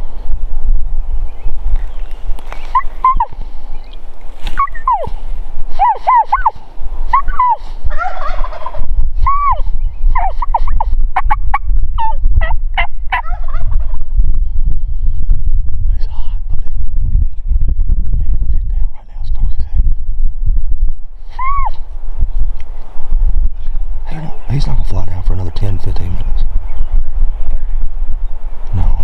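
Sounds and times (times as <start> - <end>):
steady low rumble: 0.0 - 29.0
sharp pitched bird calls: 1.0 - 5.2
wild turkey gobbling: 2.4 - 3.4, 4.4 - 5.2, 5.8 - 14.0.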